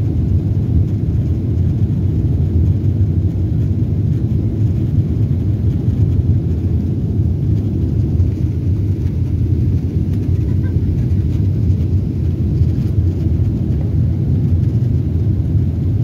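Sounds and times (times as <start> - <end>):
jet engine cabin rumble: 0.0 - 16.0.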